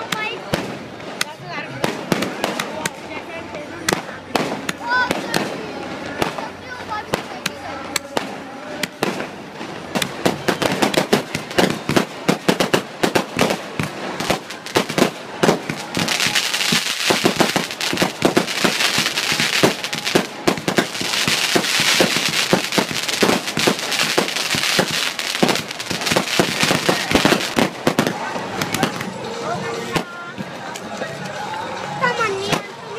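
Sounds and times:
fireworks bangs and crackles: 0.0s - 31.0s, 32.0s - 32.9s
dense crackling hiss: 8.9s - 29.0s.

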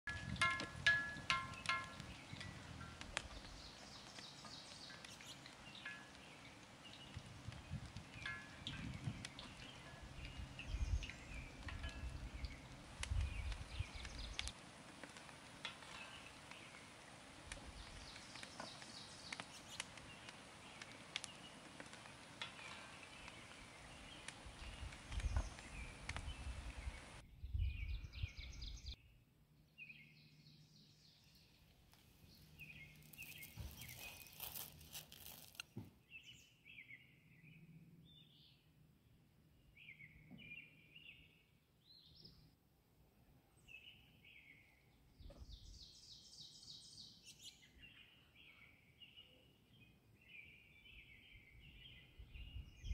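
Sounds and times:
wind on microphone: 0.1s - 3.6s, 7.0s - 14.5s, 24.4s - 29.0s, 52.2s - 52.9s
birds chirping: 0.1s - 14.5s, 15.7s - 37.2s
hot oil sizzling: 0.1s - 27.2s, 32.8s - 35.6s.

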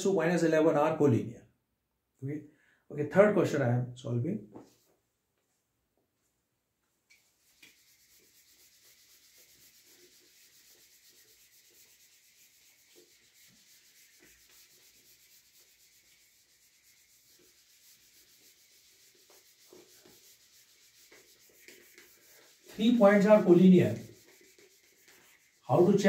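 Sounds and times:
eraser rubbing on whiteboard: 7.1s - 26.0s.

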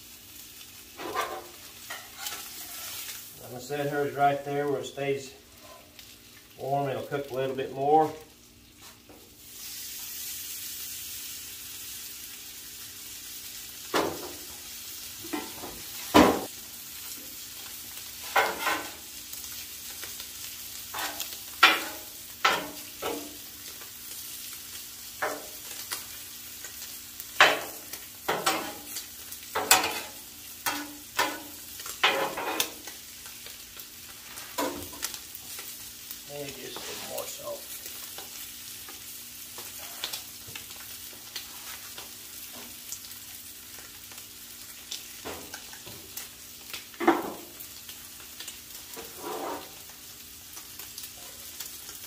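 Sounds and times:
food sizzling on griddle: 0.0s - 52.0s
metal tongs and spatula clanking: 27.4s - 28.8s, 29.6s - 32.8s.

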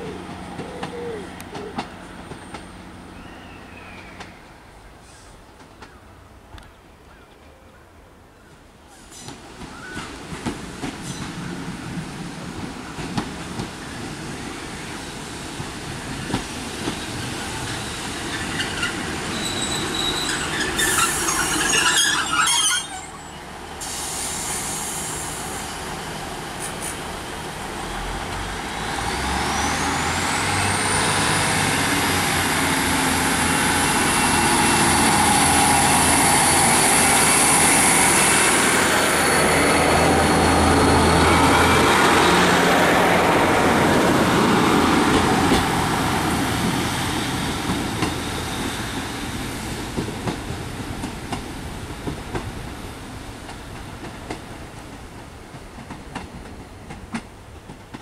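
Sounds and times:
squealing clicking train brakes: 17.6s - 26.0s, 26.6s - 27.1s, 46.6s - 49.3s.

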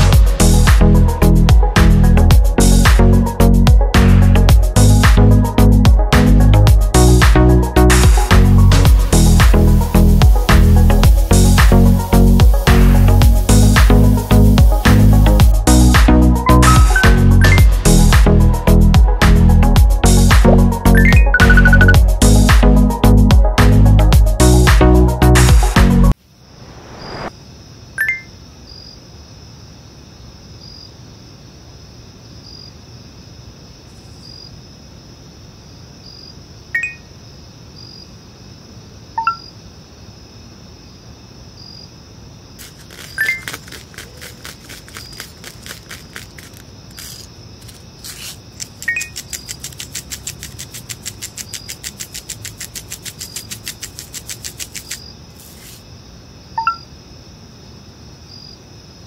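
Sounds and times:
faint steady hiss: 8.8s - 16.0s, 26.1s - 59.0s
pepper mill grinding clicks: 42.6s - 55.0s.

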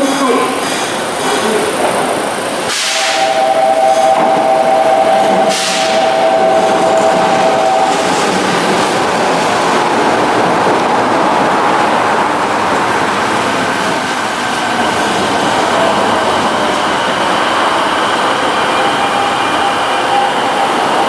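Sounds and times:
train wheel and motor noise: 0.0s - 21.0s
faint train whine: 2.7s - 8.7s.

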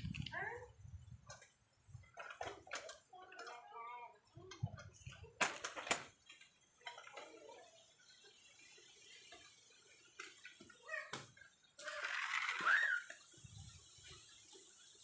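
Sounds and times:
plastic toy clicking and tapping: 1.3s - 3.7s, 4.4s - 7.6s.

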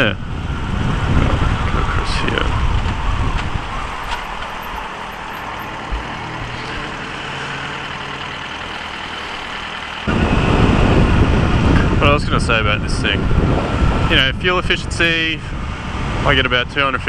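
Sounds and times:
wind rush: 0.0s - 7.6s, 10.1s - 17.0s
traffic: 0.0s - 17.0s
motorcycle engine idling: 4.3s - 10.1s.

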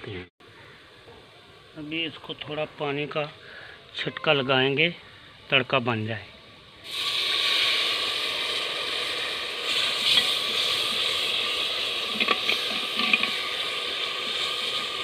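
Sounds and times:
oil sizzling in a pot: 6.4s - 15.0s
water poured into hot pot: 6.8s - 15.0s.

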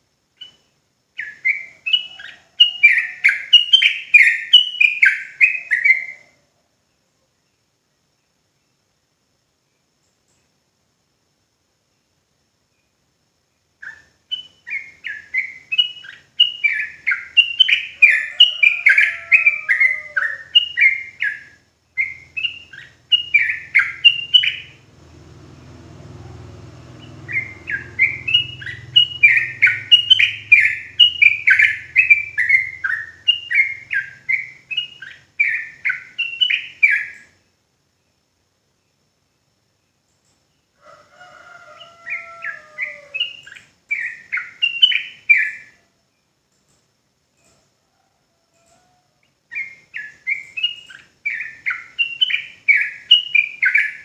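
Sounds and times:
bird singing rapid rolling song: 0.3s - 6.4s, 13.6s - 40.8s, 41.7s - 46.4s, 49.2s - 54.0s
low rumble: 24.7s - 31.2s.

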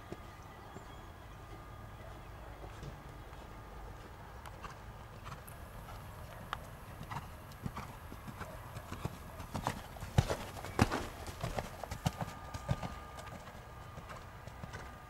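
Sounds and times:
hoofbeats on sand: 7.0s - 15.0s
sharp hoof strike: 9.6s - 13.6s.

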